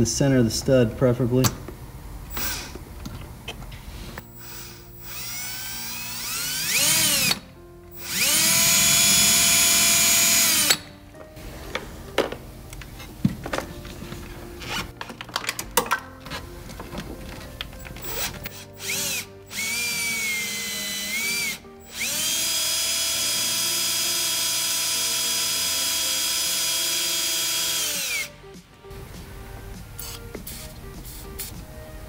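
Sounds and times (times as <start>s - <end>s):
cordless drill whining: 2.3s - 2.8s, 4.2s - 10.9s, 18.0s - 28.4s.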